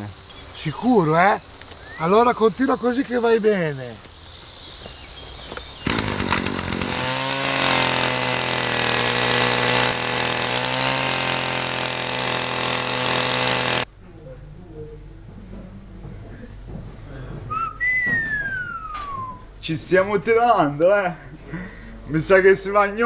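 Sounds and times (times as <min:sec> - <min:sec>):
brush cutter engine revving: 0:05.8 - 0:13.9.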